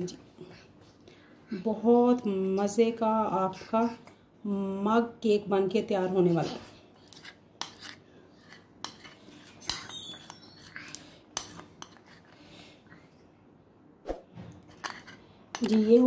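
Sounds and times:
spoon scraping batter in glass bowl: 6.4s - 12.4s, 14.6s - 16.0s.

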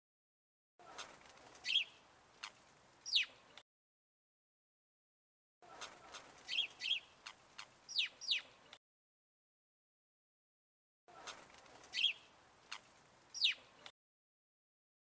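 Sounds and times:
songbird chirping: 0.9s - 3.6s, 5.7s - 8.8s, 11.2s - 13.9s.

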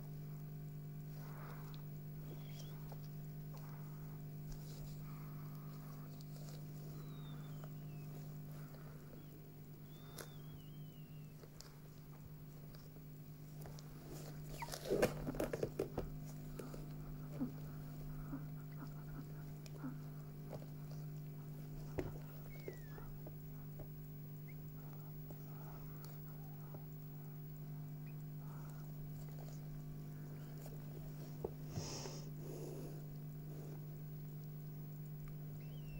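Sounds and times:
rustling and handling: 0.4s - 35.9s
puppy squeaking: 22.3s - 23.2s, 35.6s - 35.9s.

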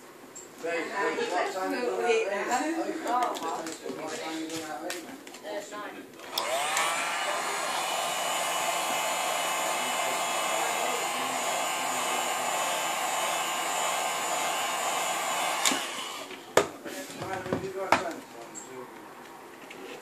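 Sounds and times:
heat gun blowing: 6.2s - 16.5s.

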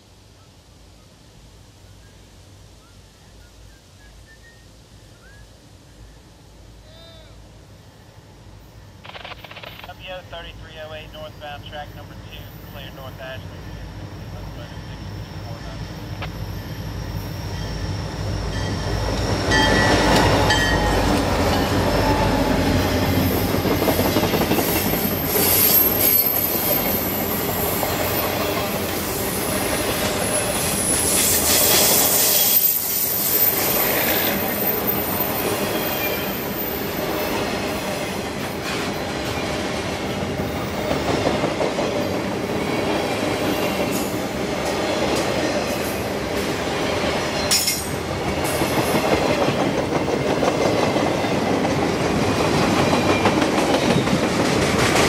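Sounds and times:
diesel locomotive engine rumble: 4.9s - 32.1s
train wheels clattering: 46.9s - 55.0s.

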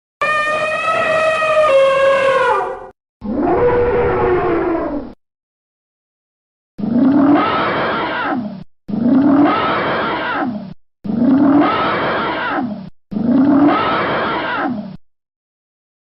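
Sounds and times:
elephant trumpeting: 0.2s - 4.2s.

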